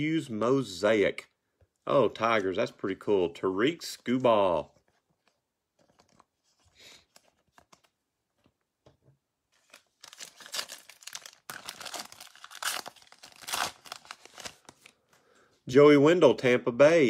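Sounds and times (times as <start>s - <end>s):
foil wrapper tearing and crinkling: 9.6s - 14.9s.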